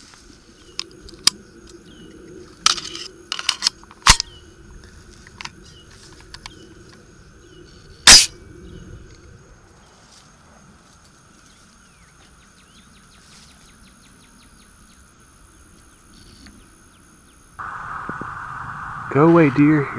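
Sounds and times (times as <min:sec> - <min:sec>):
rifle action metallic clicks: 0:02.6 - 0:04.3, 0:08.1 - 0:08.3.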